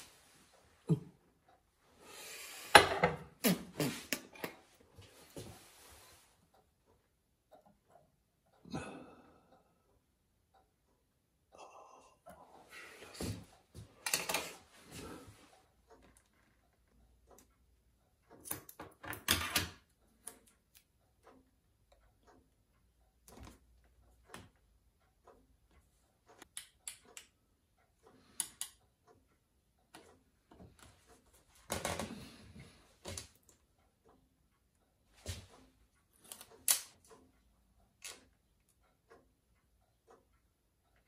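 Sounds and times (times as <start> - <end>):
scissors cutting tape: 36.2 - 37.0.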